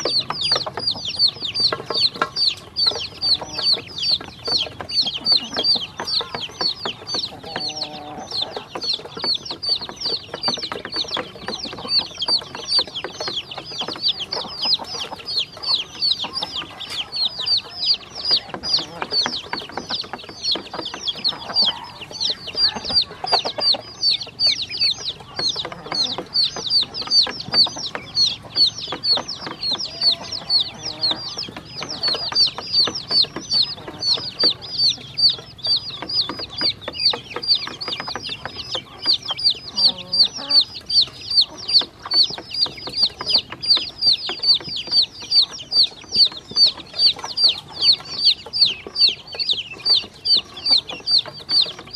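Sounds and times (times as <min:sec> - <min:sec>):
ducklings and chicks peeping: 0:00.0 - 0:51.9.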